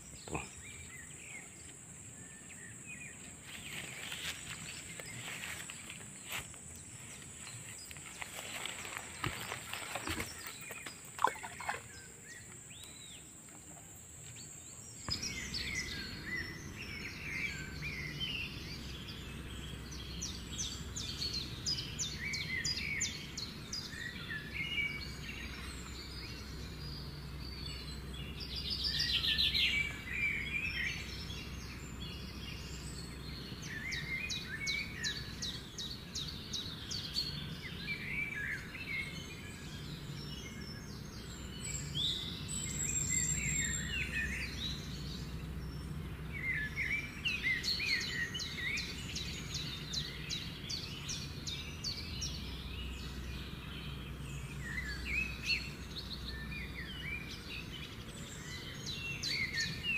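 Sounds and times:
birds chirping and trilling: 0.0 - 59.9.

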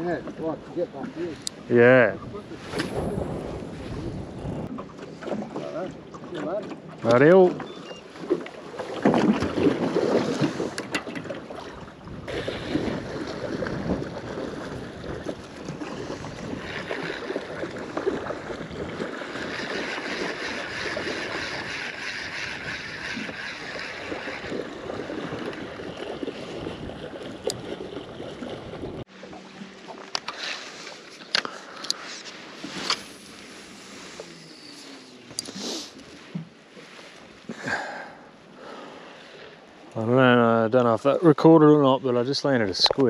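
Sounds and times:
water lapping against boat hull: 0.0 - 41.4
wind buffeting microphone: 2.0 - 4.8, 11.7 - 29.1.

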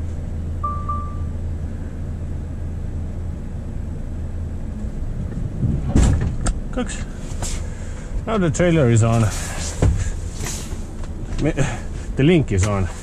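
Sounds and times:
diesel truck engine rumbling: 0.0 - 13.0
short electronic beep: 0.6 - 1.5.

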